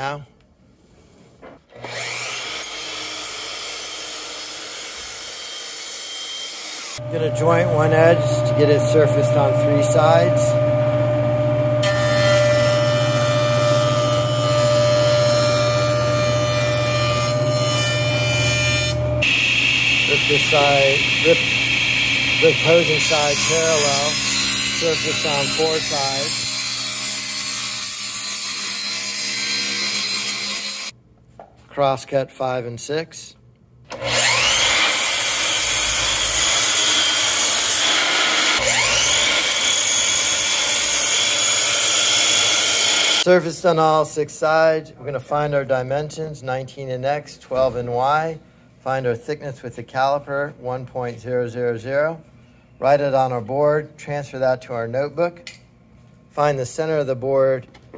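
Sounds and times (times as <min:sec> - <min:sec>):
miter saw cutting wood: 0:01.7 - 0:30.9, 0:33.9 - 0:43.3
jointer motor hum and whine: 0:07.0 - 0:26.5, 0:33.9 - 0:43.3
knives planing wood: 0:11.8 - 0:30.9, 0:33.9 - 0:43.3.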